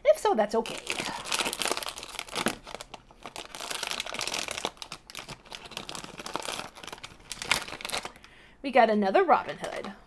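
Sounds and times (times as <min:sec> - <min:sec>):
foil bag crinkling: 0:00.6 - 0:08.4.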